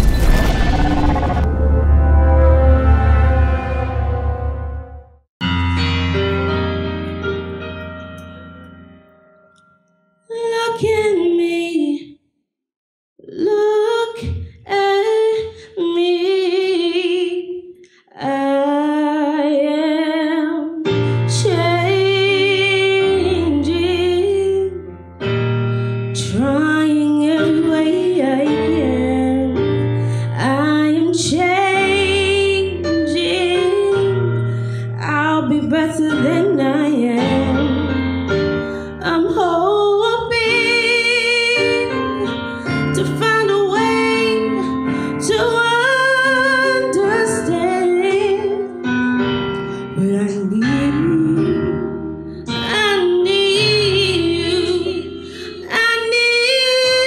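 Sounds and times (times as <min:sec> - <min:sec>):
keyboard chords with bass: 0:01.4 - 0:09.2
woman singing soul ballad: 0:13.3 - 0:17.5, 0:18.2 - 0:24.8, 0:26.1 - 0:38.0, 0:38.8 - 0:48.9, 0:49.8 - 0:57.0.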